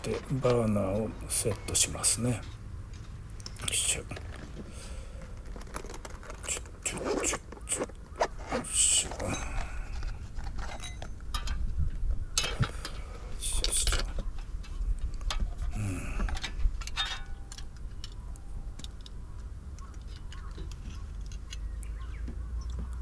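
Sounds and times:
soft case rustling: 0.0 - 3.2, 3.8 - 11.2
metal clicks and clatter: 9.4 - 11.7, 13.6 - 21.9.

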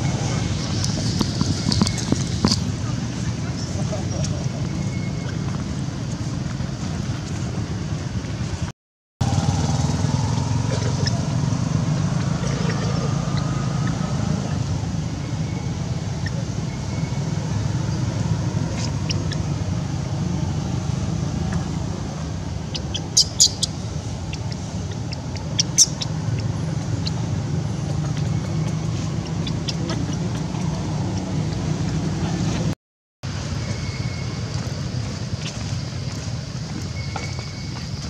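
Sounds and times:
steady low rumble: 10.2 - 32.8.

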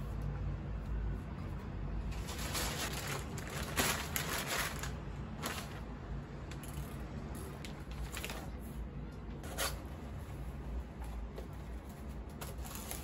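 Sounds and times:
low steady hum: 0.0 - 13.0
plastic bag rustling and crinkling: 2.1 - 6.0, 6.7 - 8.8, 11.6 - 13.0.

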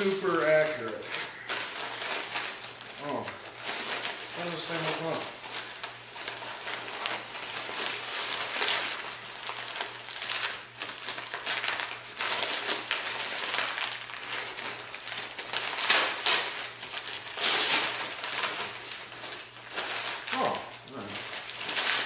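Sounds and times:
plastic packaging crinkling: 0.0 - 22.0.

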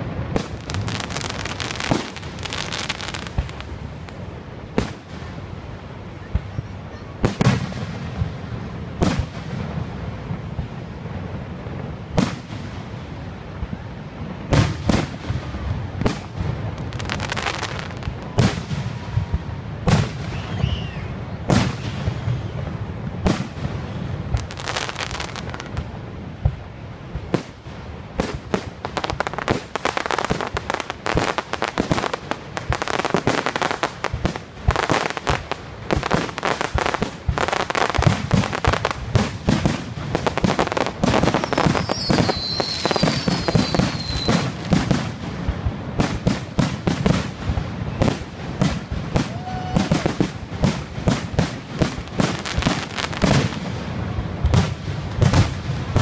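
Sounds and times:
fireworks bursting: 0.0 - 56.0.

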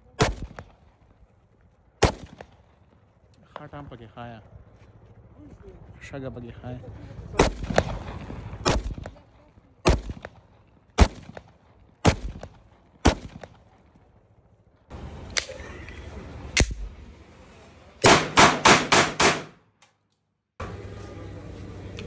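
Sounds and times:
pistol shots: 0.2 - 0.8, 2.0 - 2.7, 7.4 - 9.2, 9.8 - 13.7, 18.0 - 19.6.

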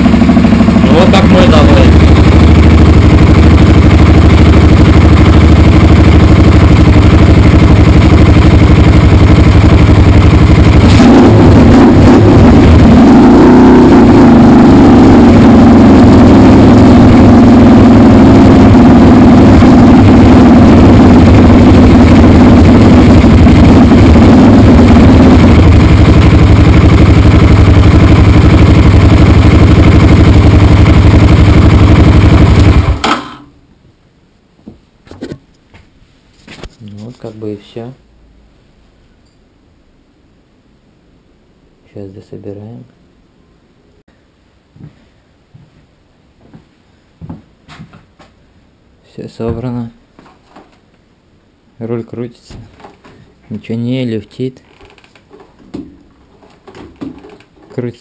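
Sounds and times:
motorcycle engine idling: 0.0 - 13.2, 13.8 - 33.1.

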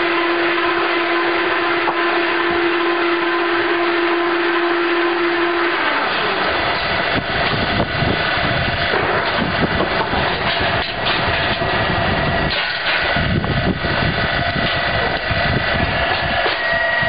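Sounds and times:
veneer lathe machine running: 0.0 - 17.0
dense irregular clatter: 6.4 - 15.4.

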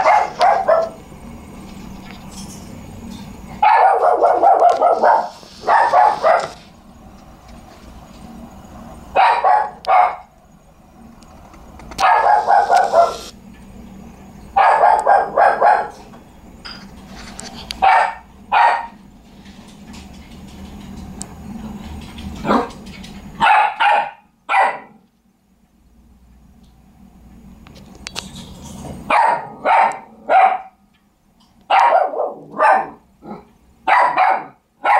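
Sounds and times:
dog barking: 0.0 - 1.0, 3.6 - 6.6, 9.2 - 10.3, 12.0 - 13.3, 14.6 - 16.1, 17.8 - 19.0, 22.4 - 22.7, 23.4 - 25.0, 29.1 - 30.8, 31.7 - 34.9.

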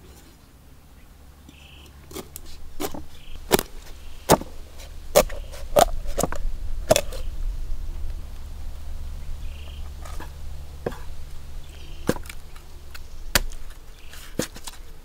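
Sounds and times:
cleaver chopping on wooden block: 2.1 - 7.2, 12.0 - 13.8.

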